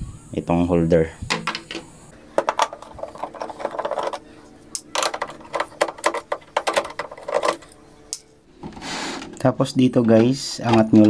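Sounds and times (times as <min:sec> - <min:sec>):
plastic clicks and knocks: 0:01.3 - 0:04.2, 0:04.8 - 0:07.7
scraping rub: 0:02.2 - 0:07.8.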